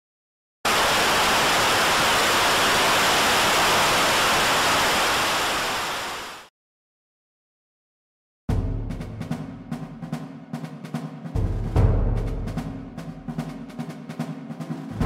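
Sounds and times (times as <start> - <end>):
static hiss: 0.7 - 6.5.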